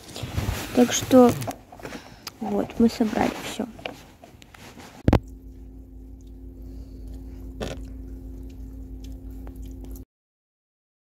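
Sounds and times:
steady hum tones: 0:00.0 - 0:10.0
vehicle interior drone: 0:05.0 - 0:10.0.

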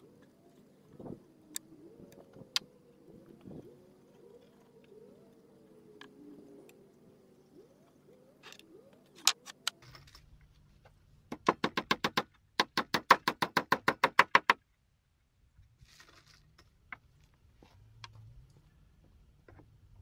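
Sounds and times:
hammer driving nails into wood: 0:11.3 - 0:14.6.

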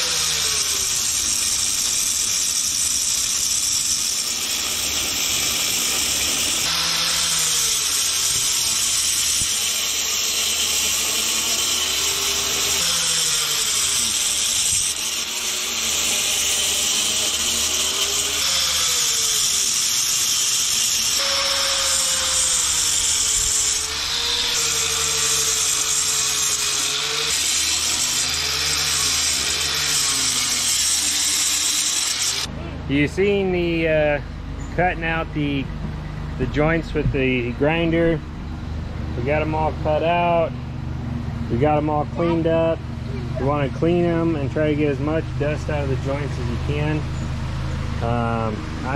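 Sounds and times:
angle grinder cutting mortar: 0:00.0 - 0:32.5.

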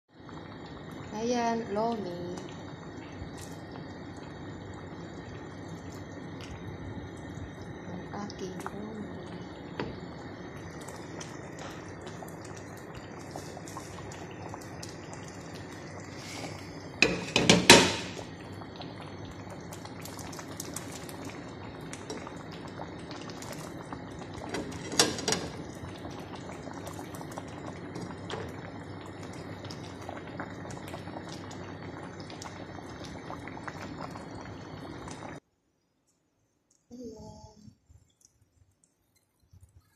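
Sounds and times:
soup boiling and bubbling: 0:00.0 - 0:35.6, 0:36.2 - 0:39.9
utensil clattering in pan: 0:17.0 - 0:18.1, 0:24.6 - 0:25.5.

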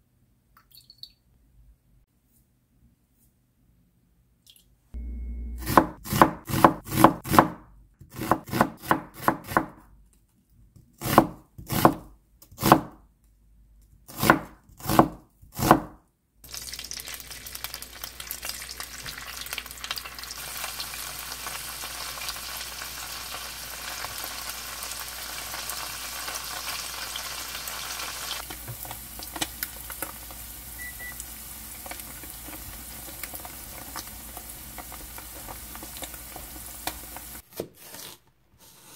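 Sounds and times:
tofu sizzling in oil: 0:16.4 - 0:37.4.

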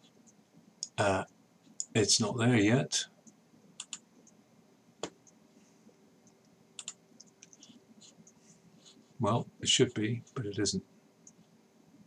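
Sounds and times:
faint mouse and keyboard clicks: 0:03.2 - 0:04.4, 0:06.2 - 0:08.4.

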